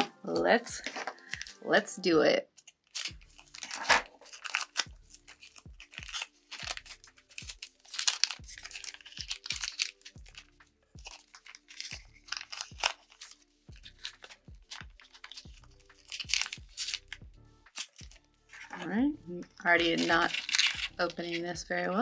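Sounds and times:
plastic wrapping crinkling and tearing: 0.0 - 1.7, 2.5 - 18.9, 19.5 - 21.5
soft background music: 0.0 - 22.0.

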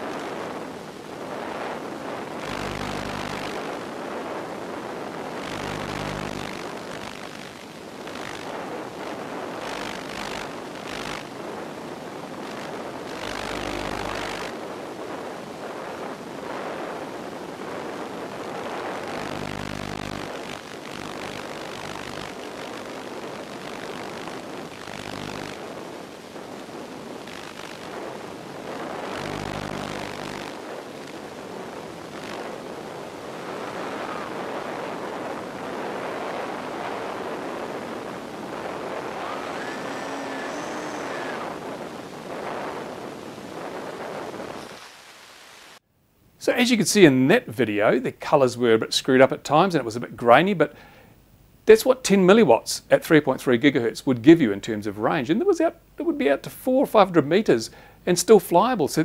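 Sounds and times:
propeller and airflow rush: 0.0 - 45.8
low hum: 18.6 - 44.6.

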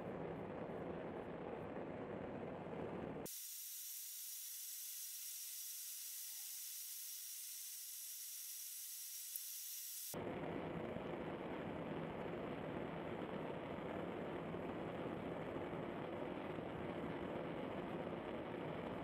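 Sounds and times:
high hiss: 3.3 - 10.2.

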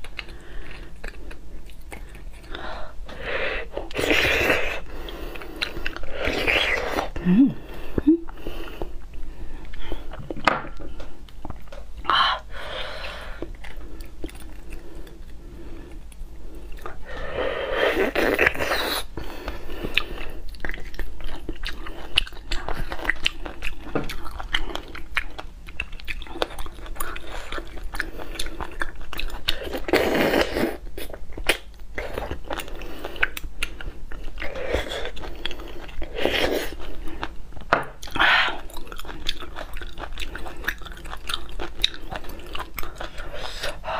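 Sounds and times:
biting and chewing: 31.0 - 43.8.

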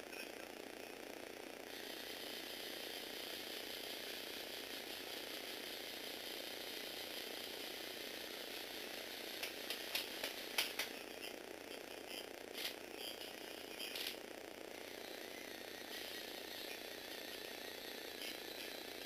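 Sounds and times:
toy electric motors whirring: 1.7 - 19.0
sharp clicks: 9.4 - 11.0.

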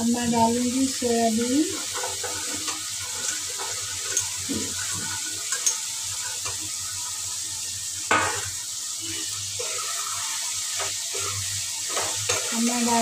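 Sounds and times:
food sizzling in a pan: 0.0 - 13.0
metal spatula scraping pan: 1.7 - 6.6, 8.1 - 13.0.

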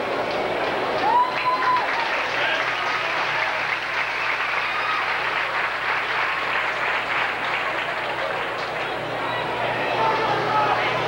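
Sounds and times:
crowd clapping: 0.0 - 11.0
crowd shouts: 1.0 - 5.4, 8.8 - 11.0.

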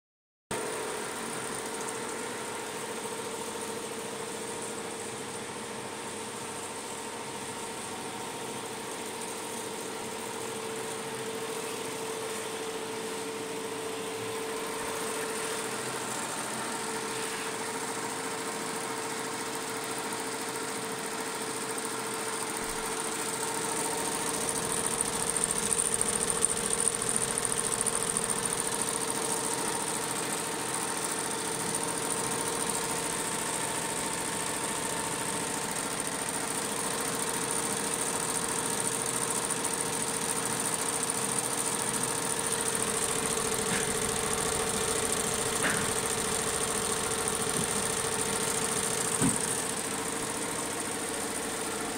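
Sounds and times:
embroidery machines stitching: 23.7 - 50.4.

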